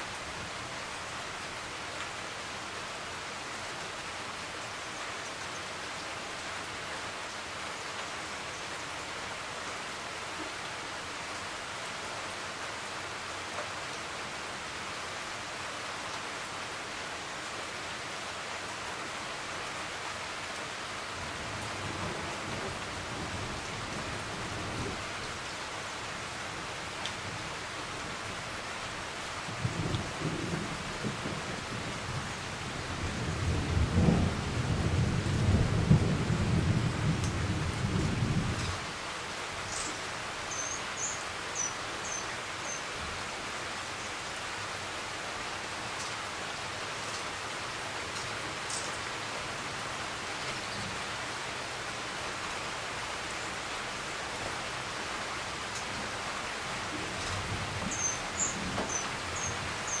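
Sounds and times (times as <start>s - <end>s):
steady rain: 0.0s - 60.0s
hummingbird chirps: 39.7s - 42.8s, 57.2s - 60.0s.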